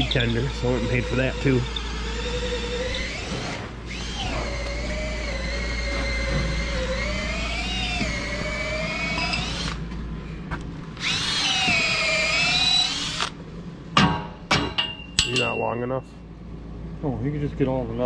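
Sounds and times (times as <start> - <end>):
cordless drill whining: 0.0 - 9.9, 11.0 - 13.4.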